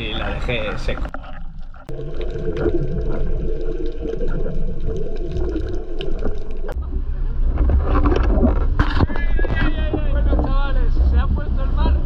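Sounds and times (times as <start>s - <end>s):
low underwater hum: 0.0s - 11.8s
underwater moving seawater: 0.0s - 12.0s
small clicks and bubbles: 0.4s - 6.8s.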